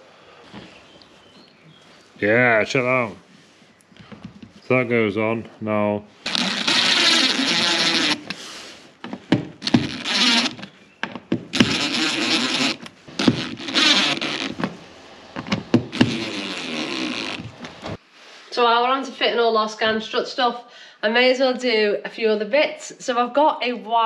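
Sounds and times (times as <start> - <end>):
cordless drill driving screws: 6.3 - 8.4, 9.6 - 10.8, 11.5 - 14.6
drill clicks: 6.3 - 8.4, 9.6 - 14.7.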